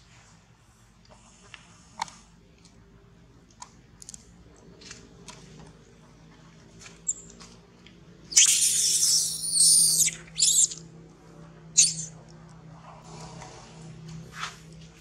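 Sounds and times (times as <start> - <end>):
baby monkey shrill scream: 8.3 - 10.8, 11.8 - 12.1.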